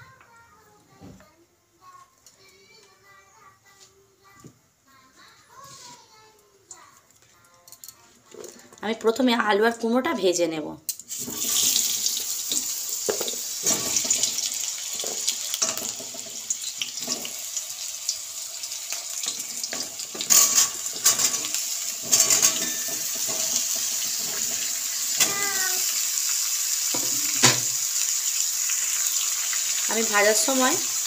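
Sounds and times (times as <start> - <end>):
oil sizzling: 10.9 - 31.0
vegetable pieces clattering in pan: 11.2 - 17.4, 19.0 - 25.7.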